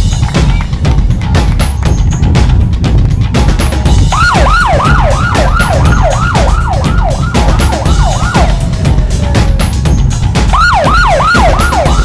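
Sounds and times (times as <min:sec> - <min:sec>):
music with steady drum beat: 0:00.0 - 0:12.0
electronic siren yelping: 0:04.1 - 0:09.3, 0:10.5 - 0:12.0.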